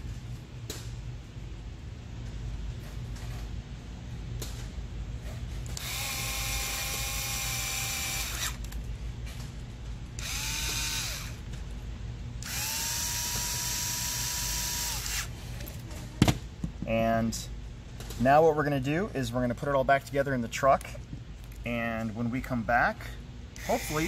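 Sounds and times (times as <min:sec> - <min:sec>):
electric screwdriver motor whining: 0:05.8 - 0:08.6, 0:10.2 - 0:11.4, 0:12.4 - 0:15.3, 0:23.6 - 0:24.0.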